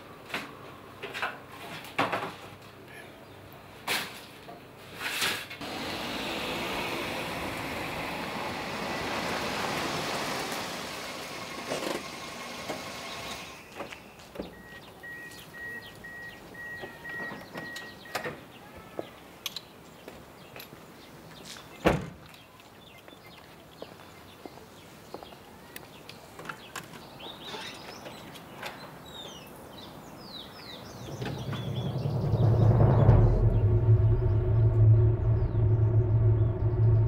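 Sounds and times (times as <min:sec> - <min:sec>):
car warning chime beeping: 0:14.5 - 0:18.2
car engine running: 0:31.4 - 0:37.0.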